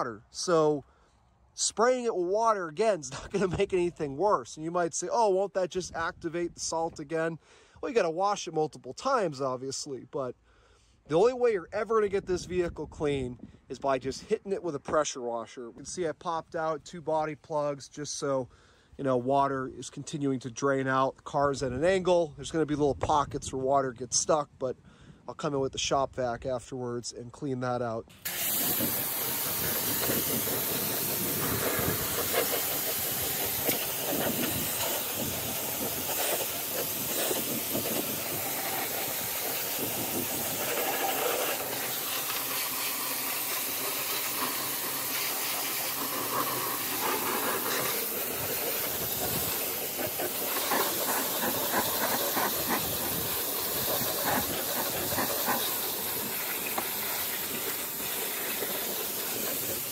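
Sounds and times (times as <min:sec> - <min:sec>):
pressure washer spraying: 0:28.1 - 0:59.9.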